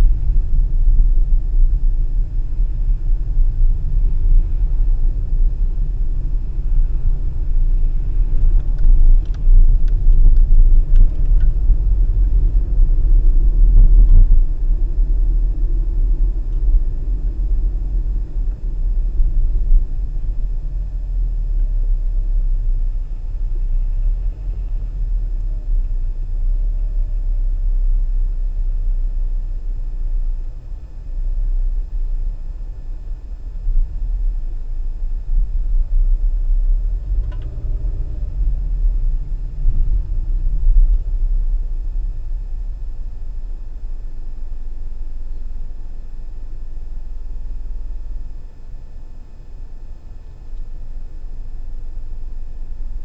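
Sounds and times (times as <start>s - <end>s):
car driving rumble: 0.0s - 53.0s
faint clicks: 37.2s - 37.6s.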